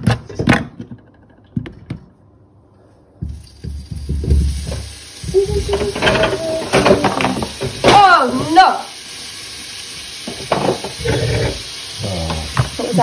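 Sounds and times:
food sizzling in frying pan: 3.3 - 13.0.

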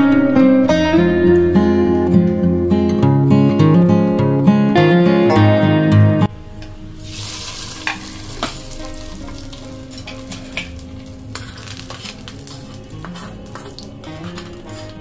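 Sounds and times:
hot oil sizzling: 6.8 - 15.0
metal spoon clinking and scraping: 7.0 - 15.0.

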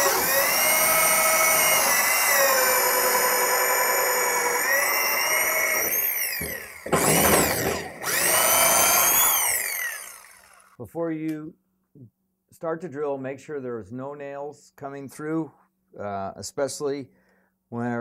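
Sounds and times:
power drill whining: 0.0 - 10.8.

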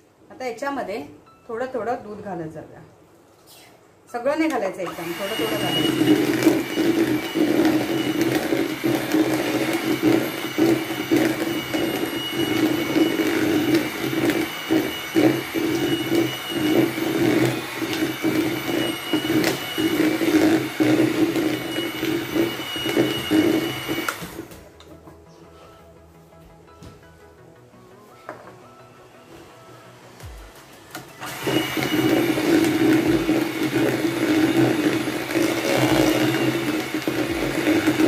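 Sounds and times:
electric hand mixer running: 4.9 - 24.6, 30.2 - 38.0.

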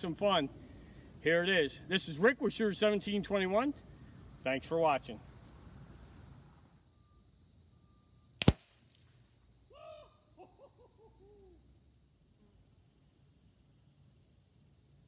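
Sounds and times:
air rifle shot: 8.4 - 8.8.

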